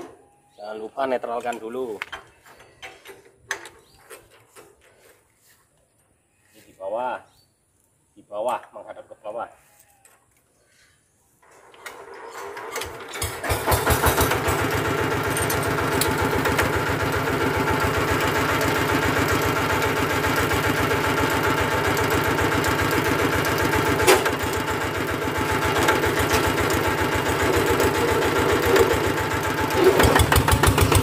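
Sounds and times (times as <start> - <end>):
diesel engine idling: 13.6 - 31.0.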